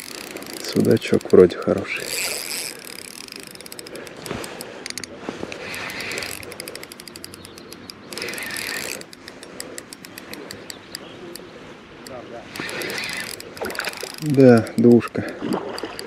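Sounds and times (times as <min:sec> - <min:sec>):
spinning reel clicking: 0:00.0 - 0:11.4, 0:12.0 - 0:16.0.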